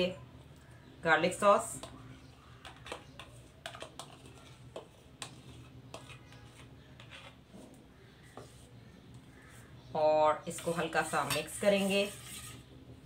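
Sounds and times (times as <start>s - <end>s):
spoon scraping a bowl: 1.8s - 8.8s, 10.5s - 12.9s.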